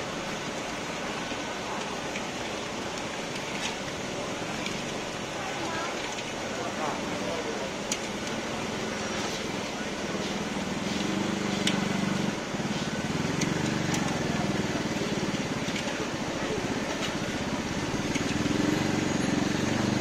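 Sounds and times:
people's voices: 4.0s - 19.8s
passing traffic: 6.4s - 20.0s.

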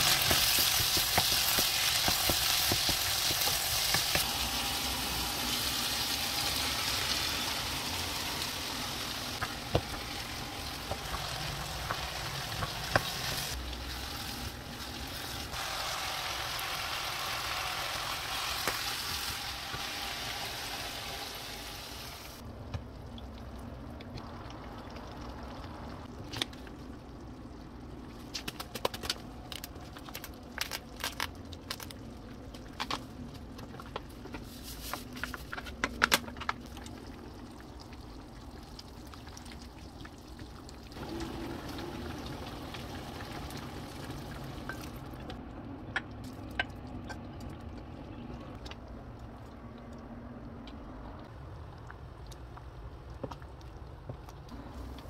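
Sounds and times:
vegetables sizzling in a frying pan: 0.0s - 22.4s.

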